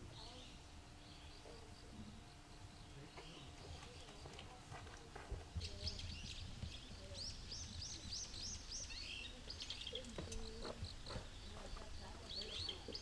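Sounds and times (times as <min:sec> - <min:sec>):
low outdoor rumble: 0:00.0 - 0:13.0
small songbirds chirping: 0:00.0 - 0:13.0.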